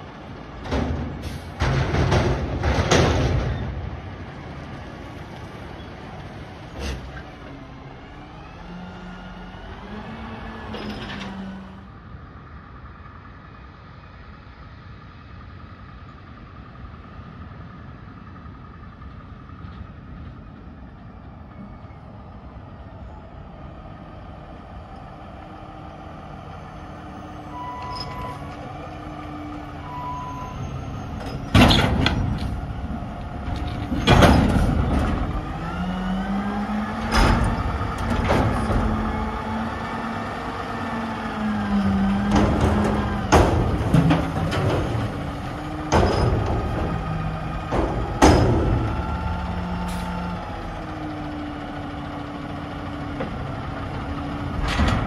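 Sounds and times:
truck diesel engine running: 0:00.0 - 0:55.0
loud metal clanks: 0:42.2 - 0:49.3.

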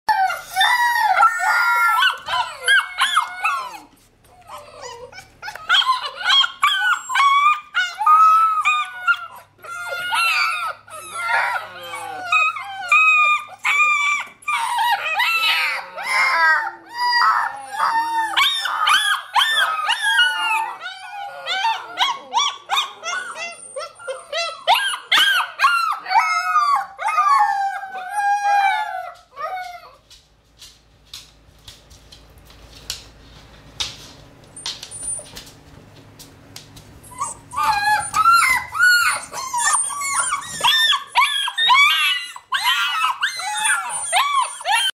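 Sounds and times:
puppies howling: 0:00.1 - 0:30.0, 0:37.1 - 0:44.9.

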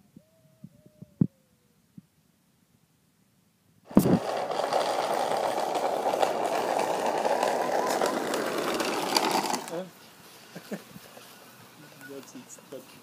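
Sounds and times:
wooden wheels rolling on asphalt: 0:03.9 - 0:10.0.

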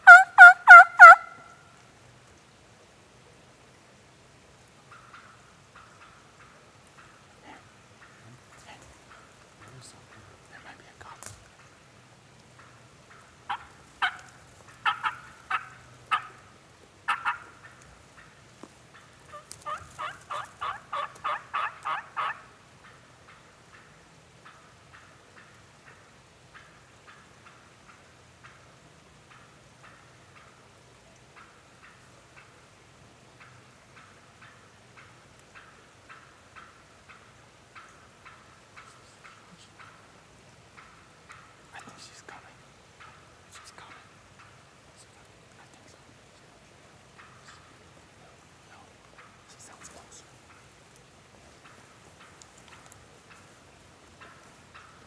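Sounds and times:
turkey call yelps: 0:00.0 - 0:01.6, 0:13.1 - 0:16.4, 0:17.0 - 0:18.3, 0:18.9 - 0:27.6.

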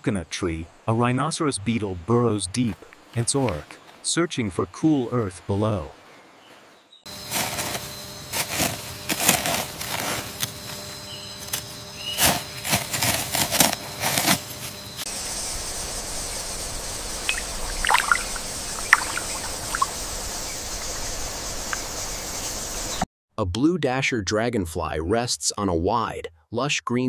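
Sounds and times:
beetle digging through soil: 0:11.4 - 0:14.8
steady hiss: 0:15.0 - 0:23.0
water trickling and dripping: 0:16.7 - 0:20.4.

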